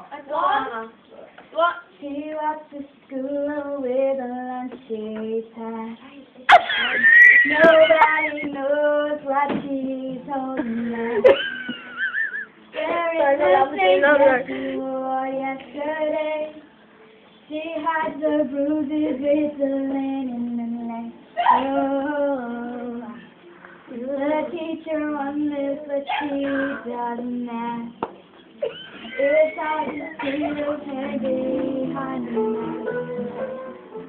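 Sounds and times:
girl singing unaccompanied: 1.6s - 6.6s, 7.3s - 11.4s, 12.7s - 28.0s, 28.8s - 33.7s.

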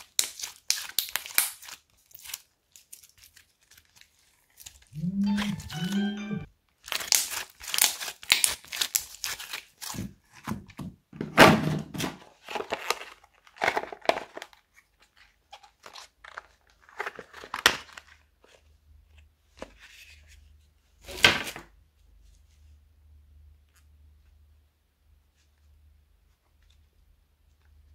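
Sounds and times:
slime squishing and crackling: 0.0s - 4.9s, 6.9s - 10.3s.

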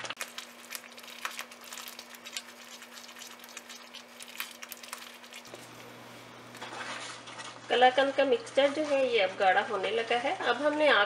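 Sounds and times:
spatula scraping in pan: 6.6s - 11.0s.

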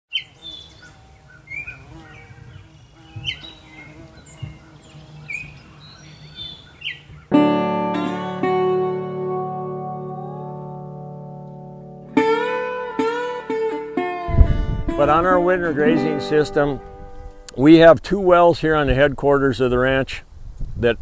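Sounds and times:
birds chirping: 0.1s - 7.4s
guitar chord ringing: 7.3s - 17.8s.

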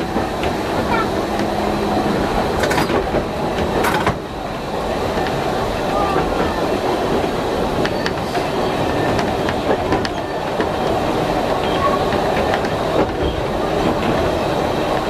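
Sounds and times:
tram wheels and motor rumbling: 0.0s - 15.0s.

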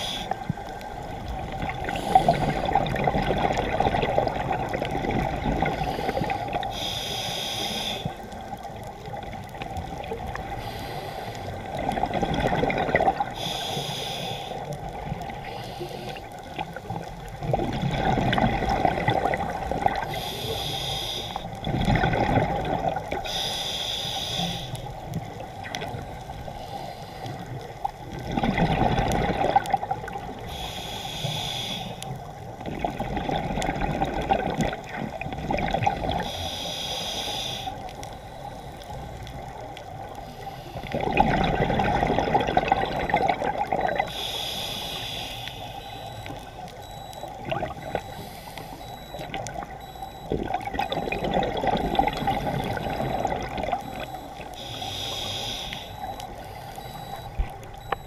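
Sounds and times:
exhaled air bubbling: 0.0s - 23.4s, 27.3s - 30.7s, 32.1s - 36.4s, 39.2s - 44.7s, 45.7s - 58.0s
regulator inhalation hiss: 5.8s - 8.2s, 10.5s - 11.6s, 13.4s - 14.7s, 15.4s - 16.2s, 20.1s - 21.5s, 23.2s - 24.9s, 26.5s - 27.5s, 30.4s - 32.2s, 36.3s - 37.8s, 44.1s - 46.0s, 48.1s - 49.2s, 54.6s - 56.7s.

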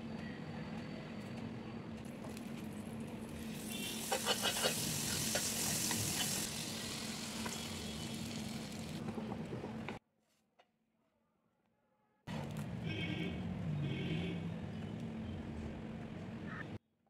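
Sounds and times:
butter sizzling on griddle: 3.4s - 9.0s.

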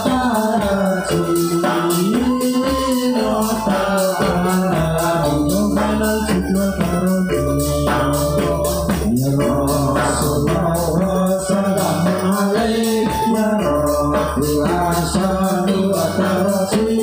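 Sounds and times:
person singing melody: 0.0s - 17.0s
quick percussion beat: 0.0s - 17.0s
low bass: 3.1s - 16.5s.

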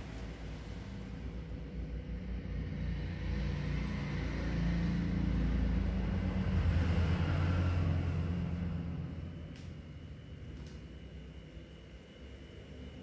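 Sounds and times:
vehicle engine passing by: 0.0s - 10.0s.

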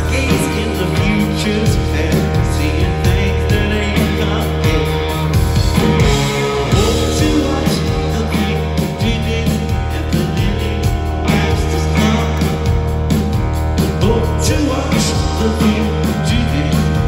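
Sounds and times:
person singing: 0.0s - 13.0s, 13.8s - 17.0s
live rock band playing: 0.0s - 17.0s.

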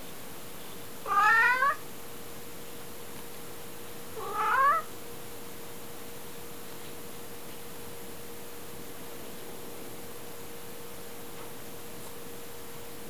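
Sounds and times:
cat meowing: 1.0s - 1.8s, 4.2s - 4.9s.

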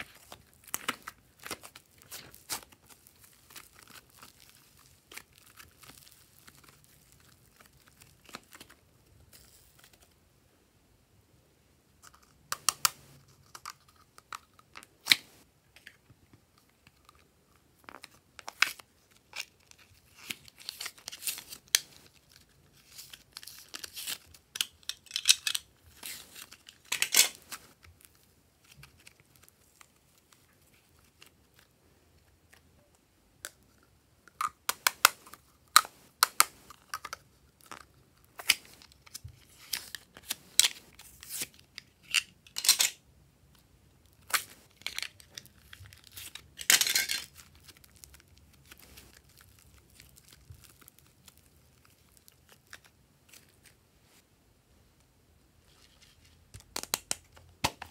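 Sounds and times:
slime crackling and popping: 0.1s - 8.8s, 47.3s - 52.9s.

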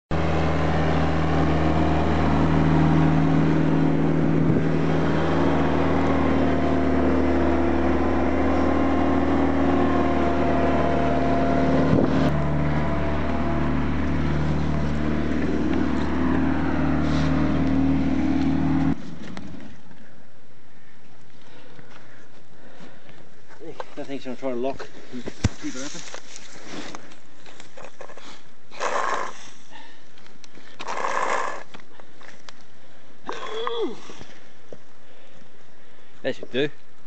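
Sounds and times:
loader engine running: 0.1s - 20.6s.

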